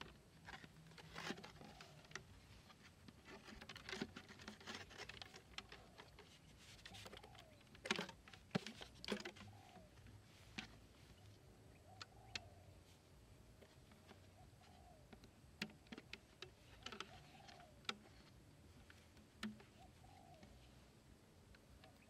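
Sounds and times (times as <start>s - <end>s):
plastic bottle clicks and rustles: 0.0s - 10.9s, 15.1s - 20.6s
bird call rising and falling: 11.1s - 12.8s.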